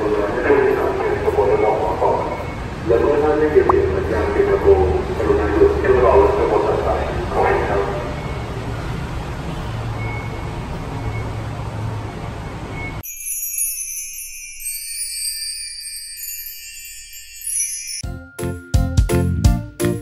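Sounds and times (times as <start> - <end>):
tinkling chimes and bells music: 13.0 - 20.0.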